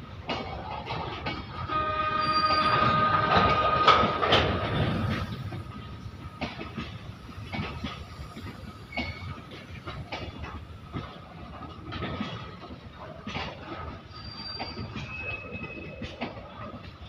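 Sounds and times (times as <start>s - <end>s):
goods train rumbling past: 0.0s - 13.0s
wheels clacking over rail joints: 0.0s - 17.0s
high wheel squeal: 1.7s - 5.6s, 14.1s - 16.0s.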